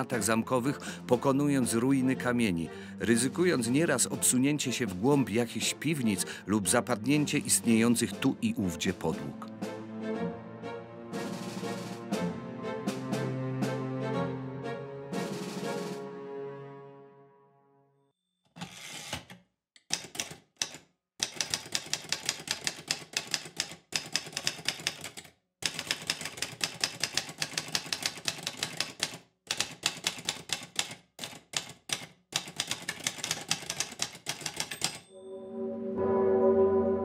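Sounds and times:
manual typewriter keystrokes: 0:19.8 - 0:35.1.

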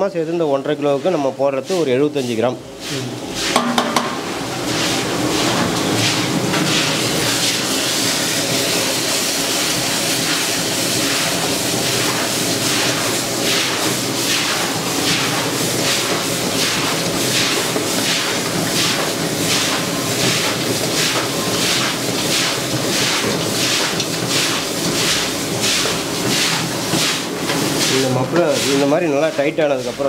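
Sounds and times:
masala sizzling in hot oil: 0:02.2 - 0:30.0
metal ladle scraping pan: 0:02.8 - 0:07.8.

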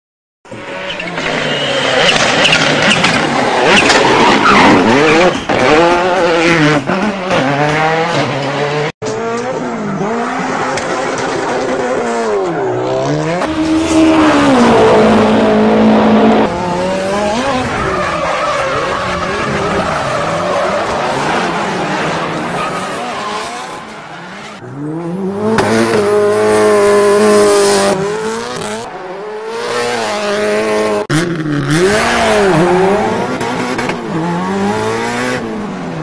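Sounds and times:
tyre squeal: 0:00.8 - 0:05.8
engine revving: 0:04.8 - 0:18.0, 0:18.6 - 0:35.7.

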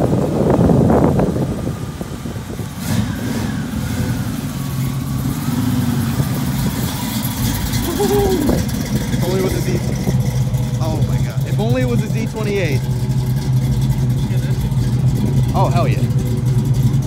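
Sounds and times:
car engine rumbling past: 0:00.0 - 0:17.0.

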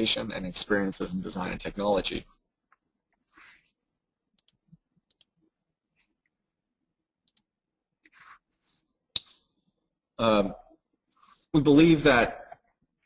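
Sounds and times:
soft breath: 0:03.3 - 0:03.8.

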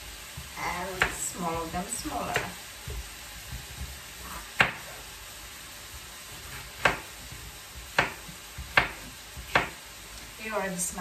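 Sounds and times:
faint sizzle of frying: 0:00.0 - 0:11.0.

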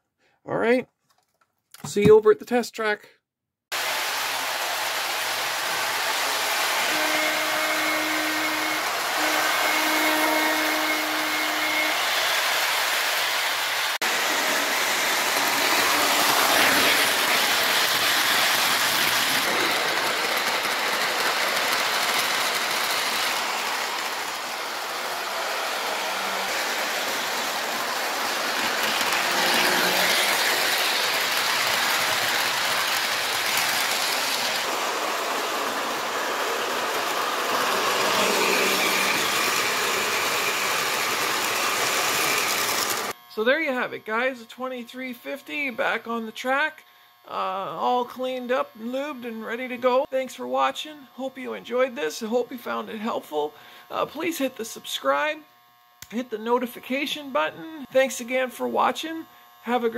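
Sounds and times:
model train motor whirring: 0:03.8 - 0:43.3.

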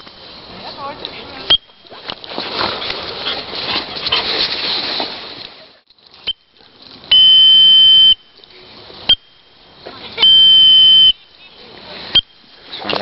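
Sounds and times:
rustling noise: 0:00.0 - 0:07.2
whistle blown: 0:07.1 - 0:08.3, 0:10.2 - 0:11.2.

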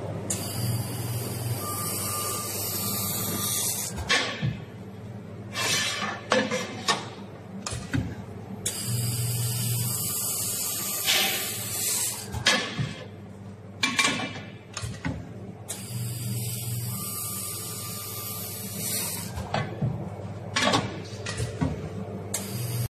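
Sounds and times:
welding machine humming: 0:00.0 - 0:05.2, 0:08.4 - 0:13.2, 0:15.6 - 0:19.5, 0:22.1 - 0:22.9
laser weld hiss: 0:00.4 - 0:03.9, 0:15.8 - 0:19.3
machine clunks and clicks: 0:03.9 - 0:04.7, 0:06.0 - 0:08.8, 0:12.3 - 0:13.1, 0:13.8 - 0:15.8, 0:19.3 - 0:22.5.

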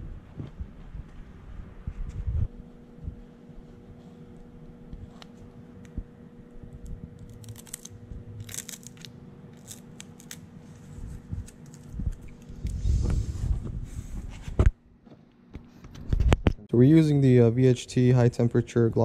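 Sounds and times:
faint steady hum: 0:00.0 - 0:19.0
plastic film crinkling: 0:07.2 - 0:10.8
low rumble: 0:11.0 - 0:14.3.

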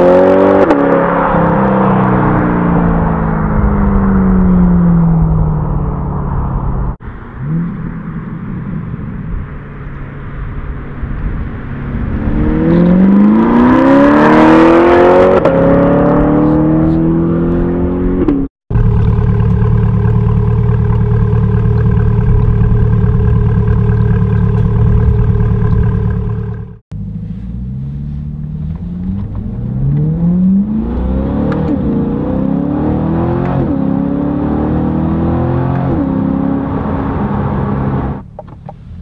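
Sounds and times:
car engine accelerating through gears: 0:00.0 - 0:08.0, 0:11.8 - 0:38.3
car exhaust at steady speed: 0:16.1 - 0:39.0.

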